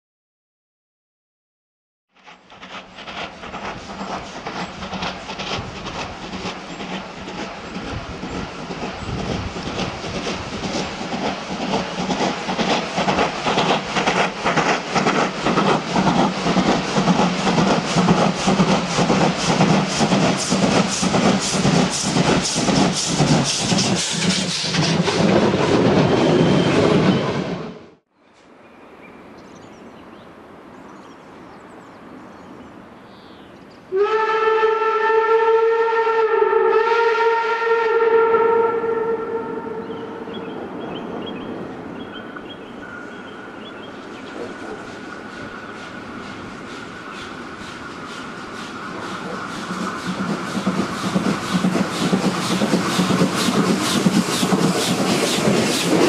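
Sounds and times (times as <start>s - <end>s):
steam locomotive exhaust beat: 2.1s - 27.7s, 43.2s - 56.0s.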